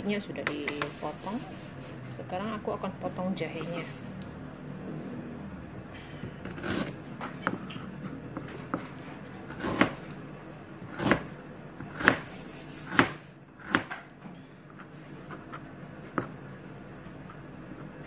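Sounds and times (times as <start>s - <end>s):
knife scraping: 6.4s - 10.0s
knife chopping on plastic board: 6.4s - 10.1s, 10.8s - 12.3s, 12.9s - 14.1s.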